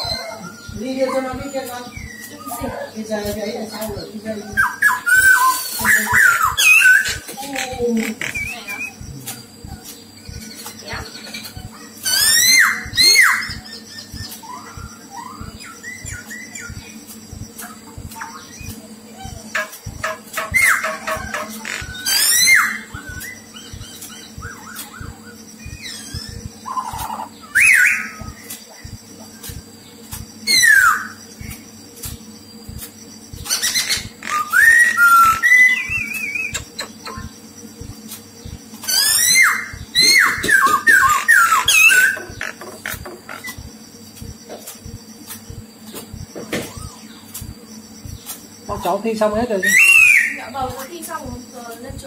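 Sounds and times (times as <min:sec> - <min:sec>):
bird whistling song: 0:00.0 - 0:31.6, 0:32.7 - 0:52.0
soft low thumps: 0:00.0 - 0:52.0
bird whistling soft notes: 0:33.3 - 0:37.3, 0:49.6 - 0:50.4
sharp clicks: 0:39.7 - 0:48.6.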